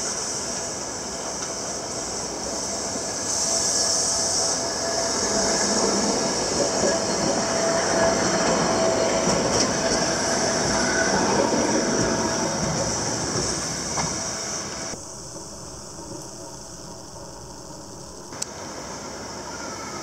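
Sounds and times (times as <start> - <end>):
streetcar wheels rolling on rails: 0.0 - 20.0.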